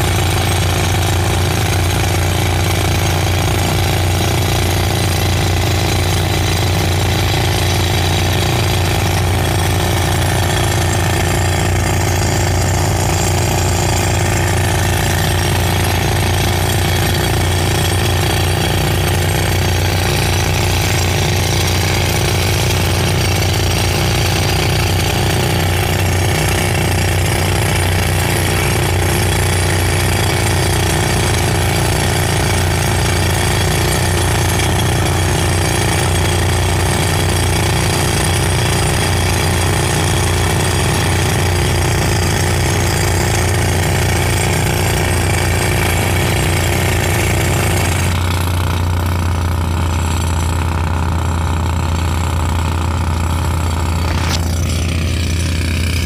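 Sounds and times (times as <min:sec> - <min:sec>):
jackhammer drilling into rock: 0:00.0 - 0:56.0.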